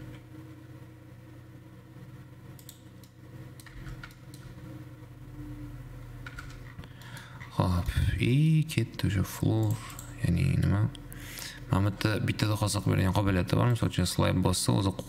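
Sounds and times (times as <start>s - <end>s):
low background hum: 0.0s - 15.0s
keyboard and mouse clicks: 2.6s - 4.5s, 6.2s - 7.3s.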